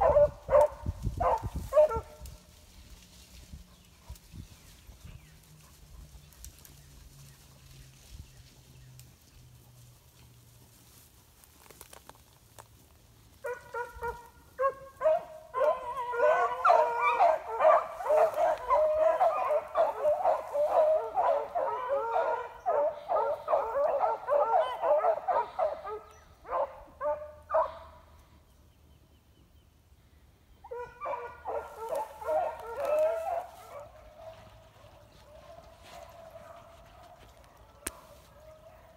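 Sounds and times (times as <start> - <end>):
beagles baying: 0.0 - 2.2, 13.4 - 28.0, 30.6 - 38.9.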